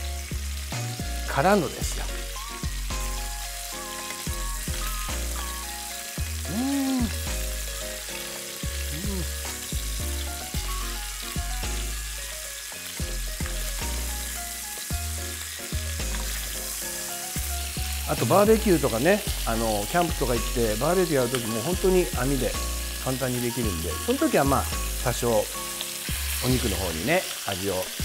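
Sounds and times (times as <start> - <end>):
background music with low notes: 0.0 - 28.0
meat sizzling in a frying pan: 0.0 - 28.0.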